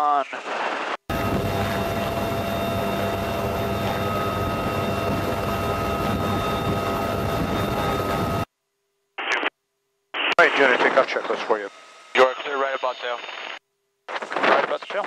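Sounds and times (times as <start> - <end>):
helicopter engine and rotor rushing: 1.1 - 8.5
turbine whine: 1.1 - 8.5.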